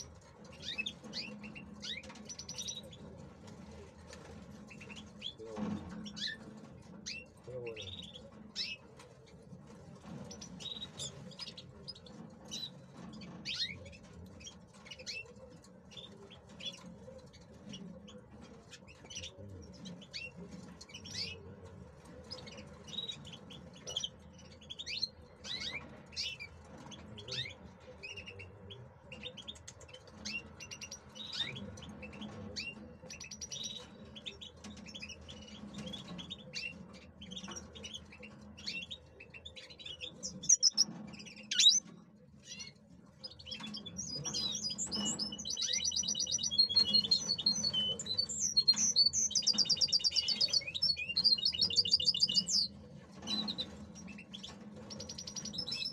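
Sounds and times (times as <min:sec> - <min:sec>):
finch chirping and twittering: 0:00.0 - 0:55.9.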